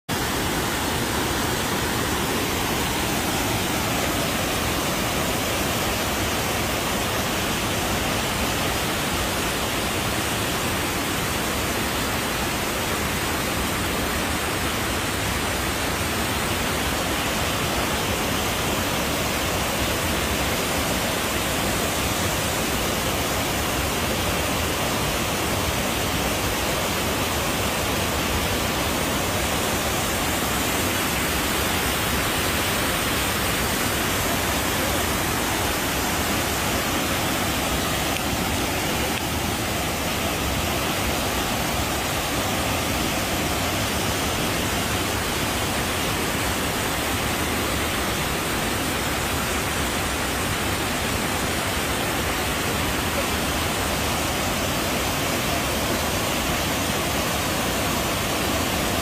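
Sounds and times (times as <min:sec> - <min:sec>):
waterfall rushing: 0:00.1 - 0:59.0.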